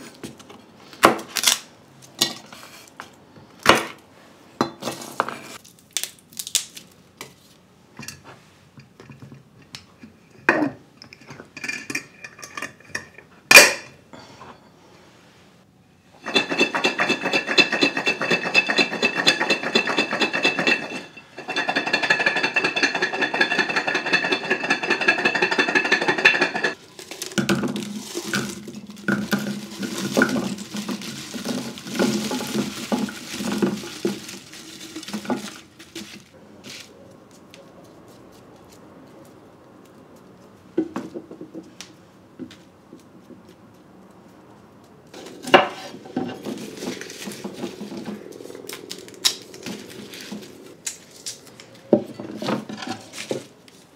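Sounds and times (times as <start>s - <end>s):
cloves clattering onto ceramic plate: 16.2s - 26.8s
garlic rattling in glass jar: 16.2s - 36.2s
faint handling sounds: 26.7s - 40.8s, 42.5s - 53.9s.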